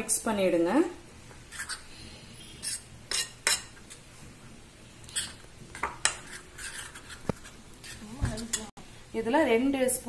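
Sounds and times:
spoon stirring thick paste: 1.5 - 4.1, 5.0 - 8.7.

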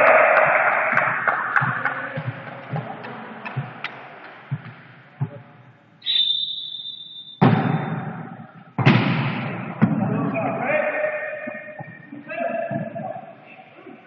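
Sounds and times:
applause: 0.0 - 4.0
referee's whistle blast: 6.0 - 8.2
volleyball being struck: 7.4 - 10.0
ball thuds: 7.4 - 10.2.

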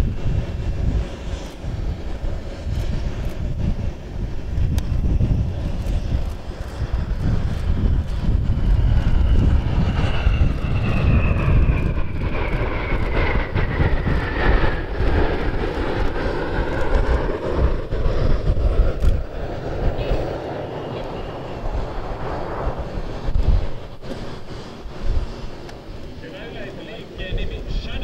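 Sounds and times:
jet engines deep rumble: 0.0 - 28.0
jet whine falling in pitch: 5.9 - 28.0.

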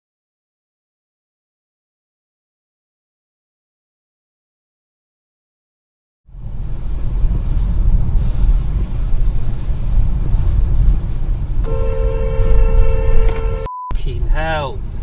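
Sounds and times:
car engine and road rumble: 6.3 - 15.0
car horn held: 11.6 - 14.0.

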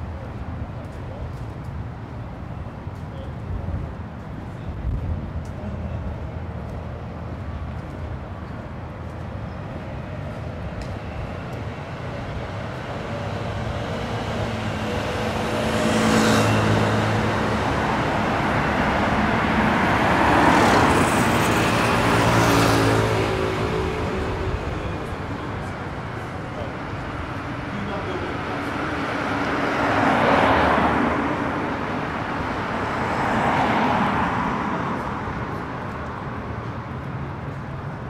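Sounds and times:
cars driving past: 7.1 - 38.0.

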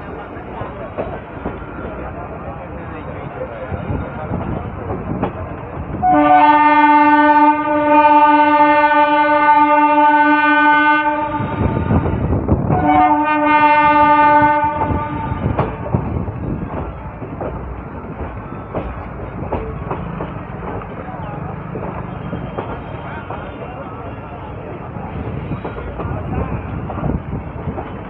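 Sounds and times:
train wheels clattering on rails: 0.0 - 3.0, 3.7 - 6.7, 11.7 - 28.0
train horn blasts: 6.0 - 11.9, 12.7 - 15.8.

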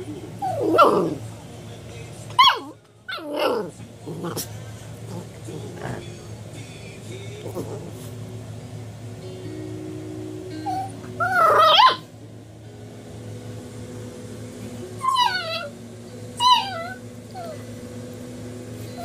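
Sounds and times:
puppy whining and yipping: 0.4 - 1.1, 2.4 - 3.4, 10.6 - 12.1, 15.0 - 15.7, 16.4 - 17.7.

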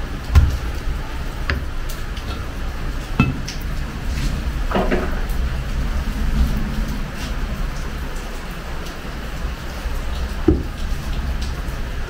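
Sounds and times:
steady low hum: 0.0 - 12.0
metal pots clinking: 3.2 - 3.7.

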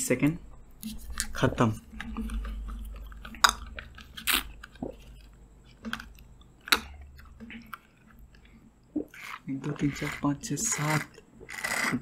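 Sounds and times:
drink carton being squeezed: 3.2 - 5.2, 9.0 - 12.0
slurping through a straw: 9.0 - 12.0.

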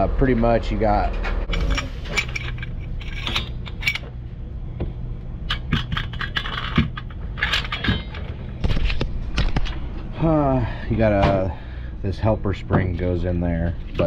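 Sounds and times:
metal parts clinking: 1.5 - 4.2, 5.4 - 9.0.

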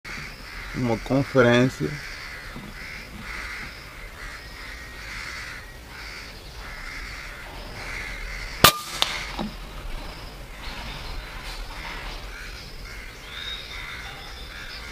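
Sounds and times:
crows cawing: 0.1 - 9.5, 12.1 - 14.9
air rifle shot: 8.6 - 9.4.

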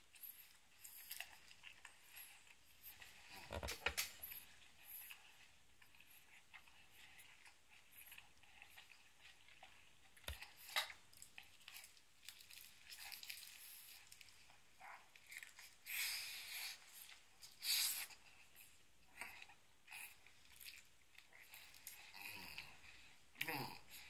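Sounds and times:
person chewing sushi: 5.1 - 17.3, 18.0 - 23.6.

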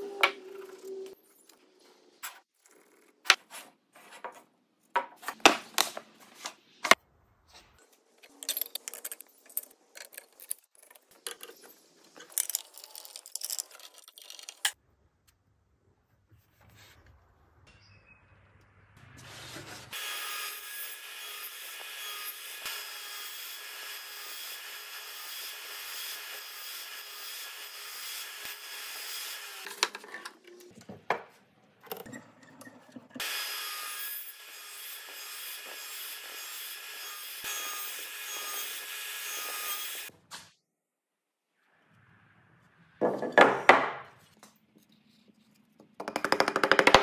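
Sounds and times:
knocks and handling: 3.2 - 14.7
saw cutting wooden board: 33.2 - 40.1.

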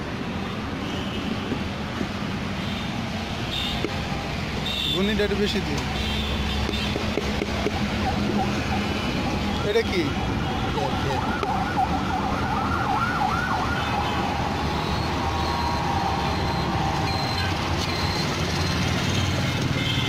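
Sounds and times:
road traffic rumble: 0.0 - 20.0
siren wailing: 10.1 - 18.4.

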